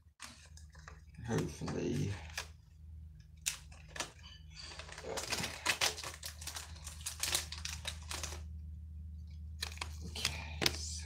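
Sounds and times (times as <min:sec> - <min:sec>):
foil wrapper crinkling: 0:03.4 - 0:08.6.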